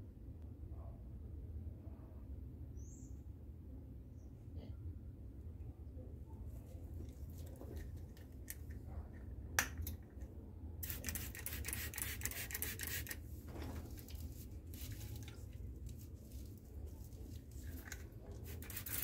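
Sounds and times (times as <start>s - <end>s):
spray bottle spritzing: 10.8s - 13.2s, 17.8s - 19.0s.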